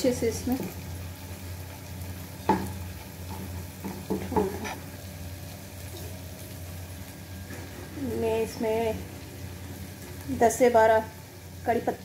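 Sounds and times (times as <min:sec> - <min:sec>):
low sizzle: 0:00.0 - 0:12.0
spatula knocking against pan: 0:02.4 - 0:04.8.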